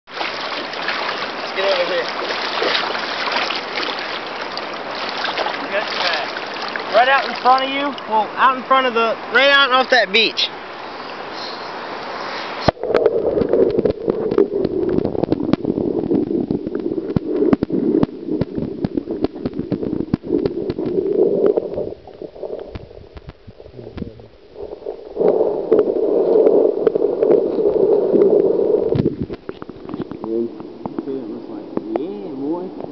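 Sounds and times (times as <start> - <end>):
muffled underwater water rush: 0.0 - 32.9
sharp underwater clicks and knocks: 12.6 - 24.2, 28.2 - 32.2.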